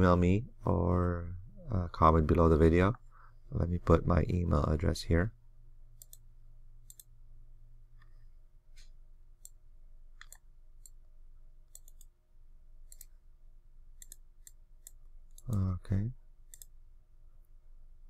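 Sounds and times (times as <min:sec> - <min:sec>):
low steady hum: 0:00.0 - 0:18.0
computer mouse clicks: 0:06.0 - 0:06.2, 0:06.8 - 0:07.1, 0:09.4 - 0:09.6, 0:10.2 - 0:11.0, 0:11.7 - 0:12.2, 0:12.9 - 0:13.2, 0:14.0 - 0:15.7, 0:16.5 - 0:16.8.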